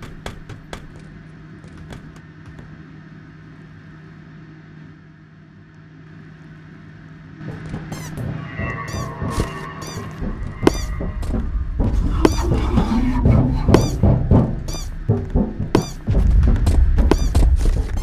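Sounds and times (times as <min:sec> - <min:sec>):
steady low hum: 0:00.0 - 0:18.0
low rumble: 0:07.4 - 0:18.0.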